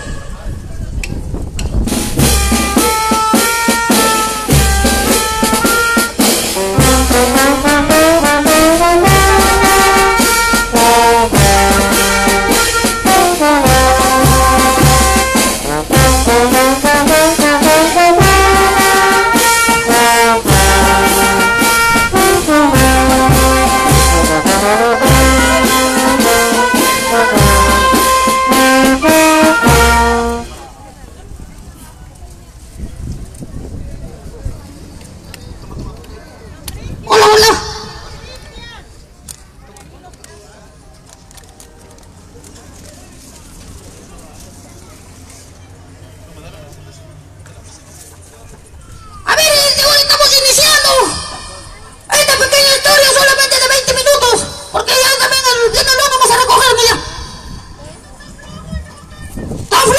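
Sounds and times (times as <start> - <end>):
brass band playing: 1.9 - 30.7, 49.3 - 57.8.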